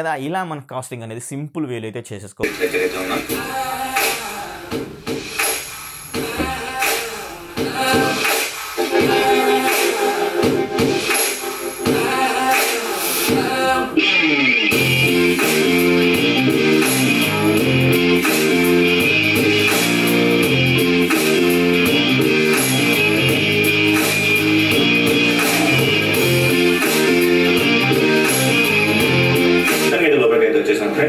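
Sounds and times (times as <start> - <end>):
guitar instrumental music: 8.8 - 12.4, 13.9 - 30.0
bass line: 14.0 - 30.0.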